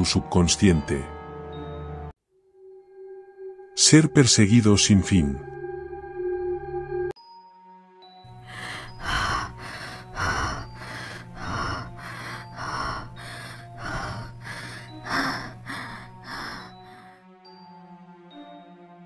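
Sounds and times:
low music drone: 8.3s - 17.2s
person panting heavily: 8.4s - 17.2s.

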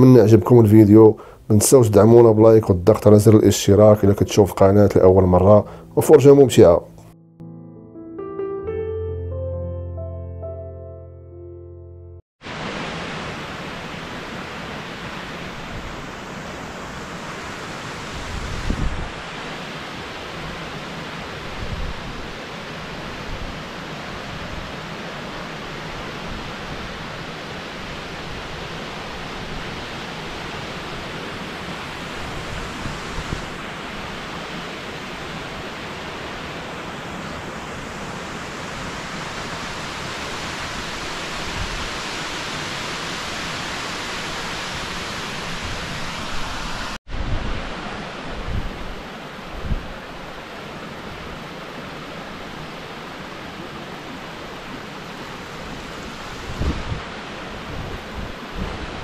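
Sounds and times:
waterfall rushing: 12.4s - 59.0s.

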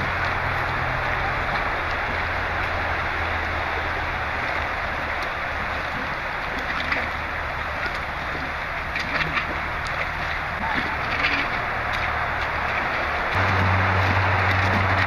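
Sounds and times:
car engine idling: 0.0s - 6.4s, 9.6s - 15.0s.

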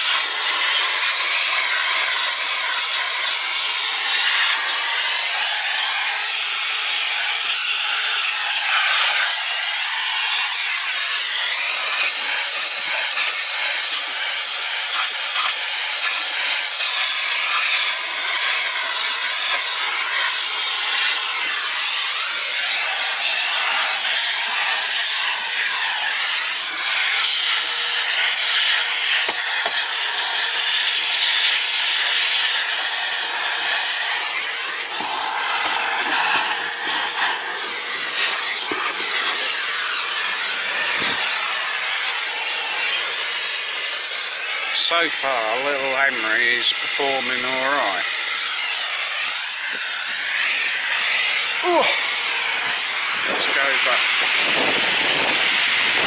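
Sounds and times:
vacuum cleaner suction hiss: 0.0s - 56.0s
nozzle rubbing and scraping: 31.8s - 42.2s.

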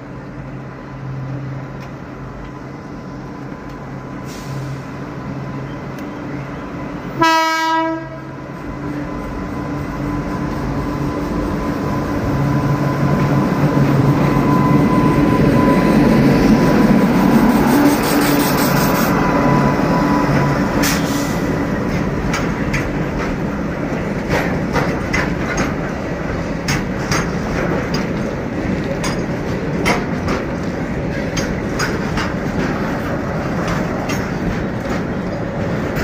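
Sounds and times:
train rumbling over a bridge: 0.0s - 36.0s
train horn blast: 7.1s - 8.4s.

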